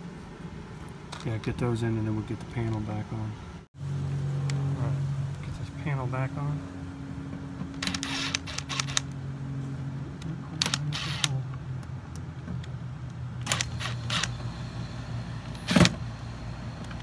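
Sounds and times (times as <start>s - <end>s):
steady low hum: 0.0s - 17.0s
cordless drill driving screws: 7.8s - 9.1s, 10.6s - 11.3s, 13.4s - 14.4s.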